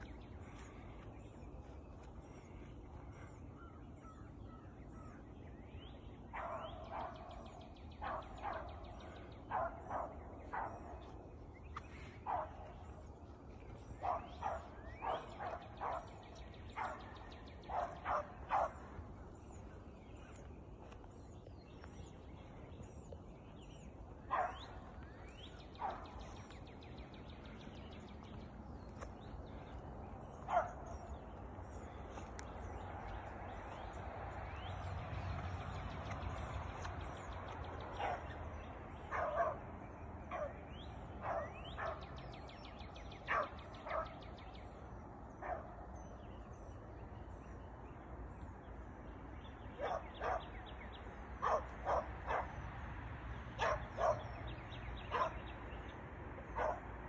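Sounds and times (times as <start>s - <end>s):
birds chirping: 0.0s - 57.0s
dog baying and barking: 14.0s - 19.0s, 24.3s - 25.0s, 30.4s - 31.2s, 53.6s - 54.4s, 55.0s - 55.5s, 56.5s - 56.9s.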